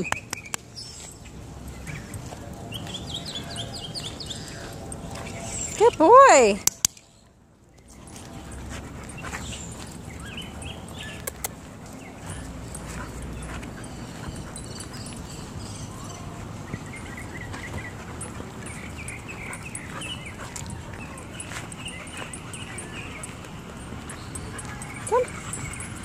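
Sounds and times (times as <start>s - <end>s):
dog sounds: 7.8s - 26.0s.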